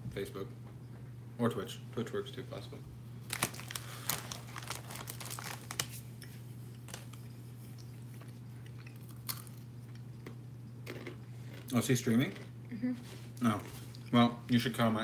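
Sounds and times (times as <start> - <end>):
steady low hum: 0.0 - 15.0
crinkling and clicking handling noises: 3.3 - 9.5.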